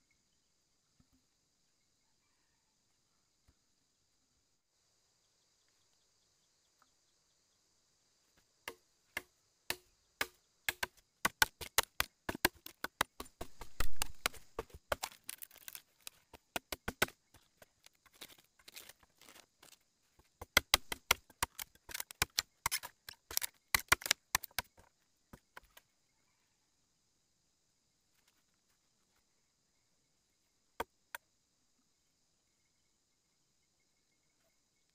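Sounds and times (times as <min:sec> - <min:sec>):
machete chopping bamboo: 0:08.7 - 0:25.7.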